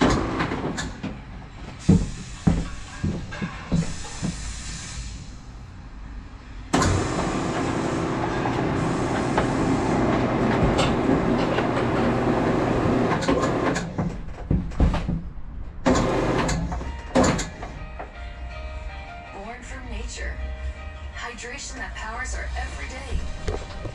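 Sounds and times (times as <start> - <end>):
gutter machine running: 6.8 - 13.8.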